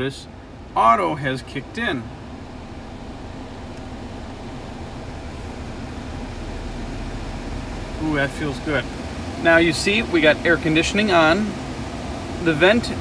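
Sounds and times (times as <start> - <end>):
car blower fan rushing air: 0.0 - 13.0.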